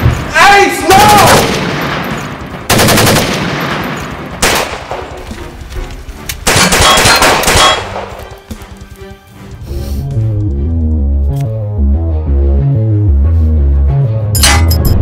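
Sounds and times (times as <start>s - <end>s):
automatic gunfire bursts: 2.7s - 3.8s, 4.4s - 4.8s, 6.4s - 8.0s.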